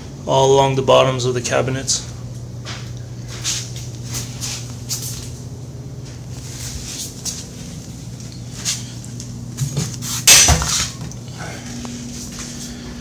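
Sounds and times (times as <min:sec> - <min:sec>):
steady low hum: 0:00.0 - 0:13.0
footstep scuffs: 0:02.6 - 0:11.1, 0:11.7 - 0:13.0.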